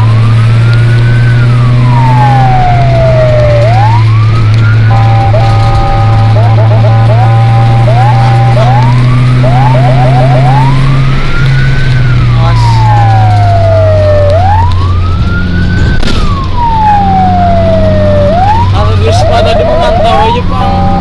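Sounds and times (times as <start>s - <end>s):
electronic siren yelping and wailing: 0.0s - 21.0s
vehicle engine droning: 0.0s - 21.0s.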